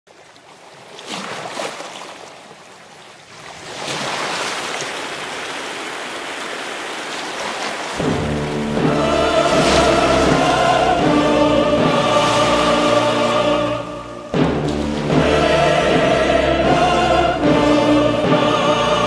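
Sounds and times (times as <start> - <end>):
sea waves washing: 3.3 - 19.0
choral music: 8.0 - 19.0.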